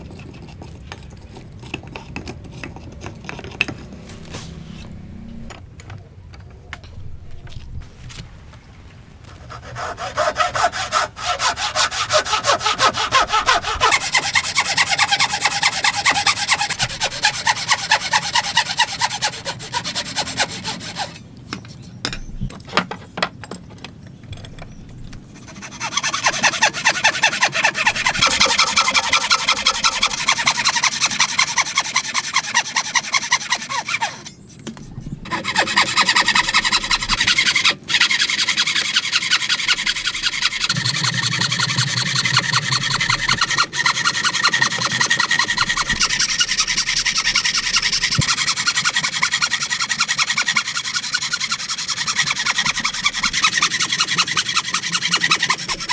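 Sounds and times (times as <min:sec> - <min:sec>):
bow saw cutting timber: 0:09.3 - 0:21.2, 0:24.7 - 0:55.9.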